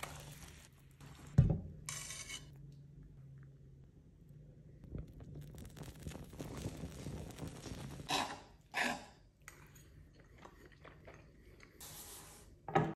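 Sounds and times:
flaming liqueur sizzling: 5.0 - 8.6.

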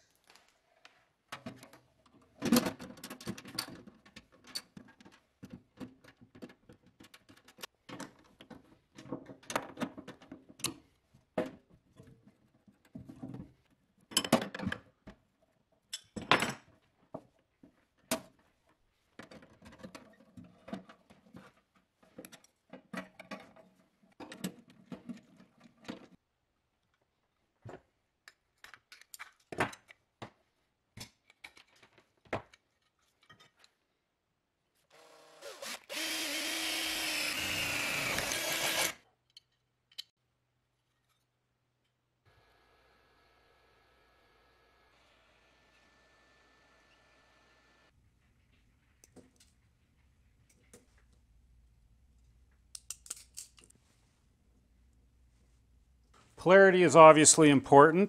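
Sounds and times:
wrench working on fitting: 35.4 - 39.0.

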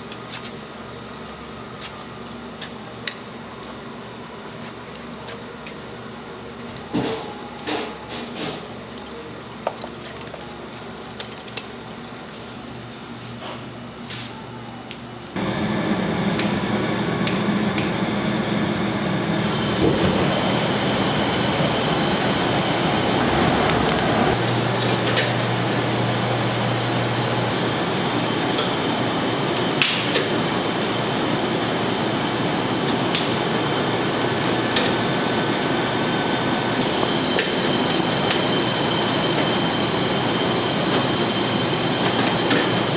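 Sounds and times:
kitchen machinery running: 15.3 - 42.9
low hum: 15.4 - 24.7.

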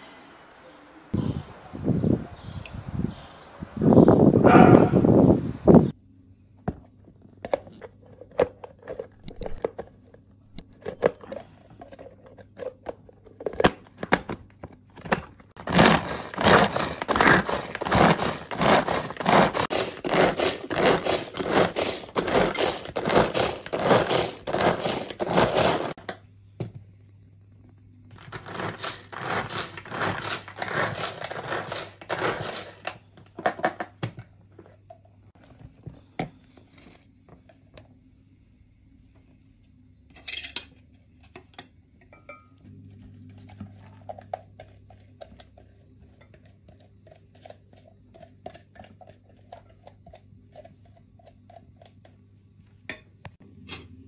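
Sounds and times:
blades rattling and scraping: 8.2 - 9.8, 15.6 - 26.0, 28.2 - 33.0
pull-cord chopper cord pulls: 15.6 - 25.9.

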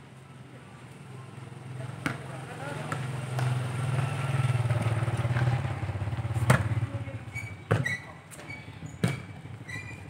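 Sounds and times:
football being kicked: 6.4 - 6.8, 7.7 - 8.0, 9.0 - 9.3.

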